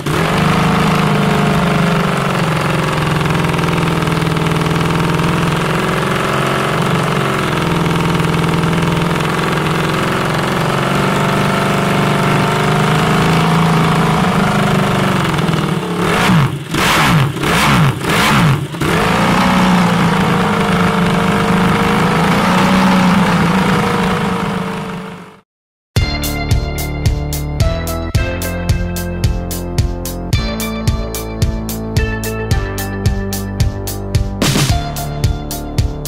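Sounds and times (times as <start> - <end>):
motorcycle engine idling: 0.0 - 22.4, 23.0 - 25.4.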